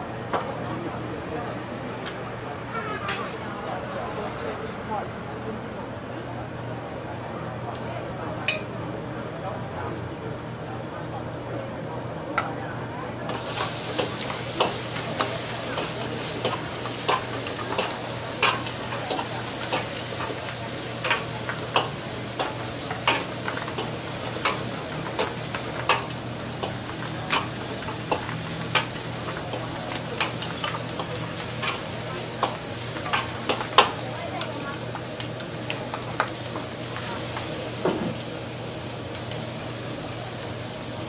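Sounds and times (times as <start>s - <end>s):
food sizzling in a wok: 13.2s - 41.0s.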